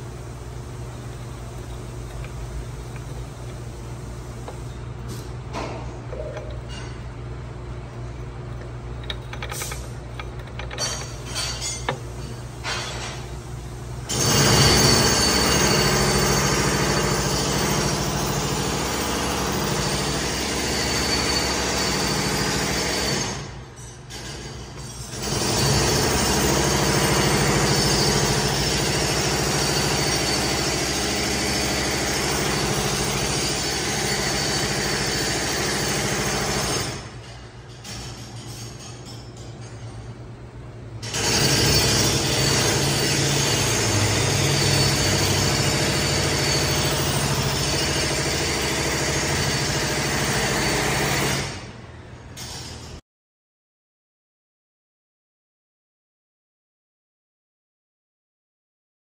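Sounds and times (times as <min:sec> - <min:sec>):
transmission gears whirring: 0:00.0 - 0:13.0.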